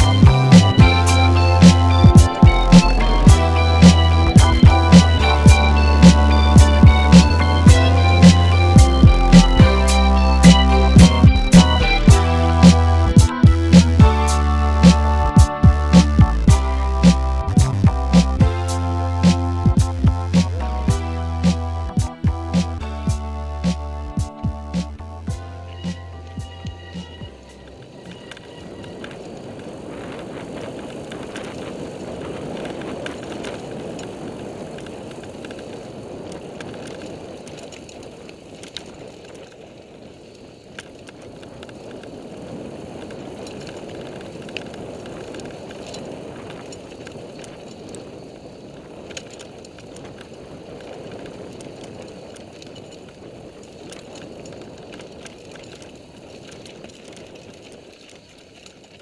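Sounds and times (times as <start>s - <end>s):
bike clicks and rattles: 0.0s - 59.0s
tyre noise on dirt: 0.0s - 59.0s
wind rush on microphone: 26.2s - 59.0s.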